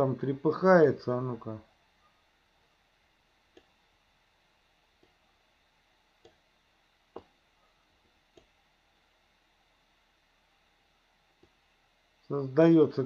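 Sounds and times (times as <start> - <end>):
computer mouse clicking: 3.5 - 3.7, 8.0 - 8.6.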